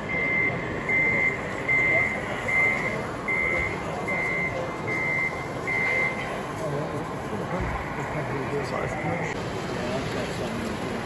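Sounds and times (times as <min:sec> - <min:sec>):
high reversing beeps: 0:00.0 - 0:06.4, 0:07.8 - 0:09.4.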